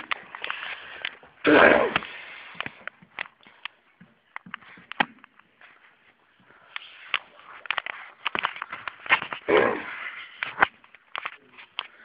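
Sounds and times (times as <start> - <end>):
rubbing on microphone: 6.8 - 10.7.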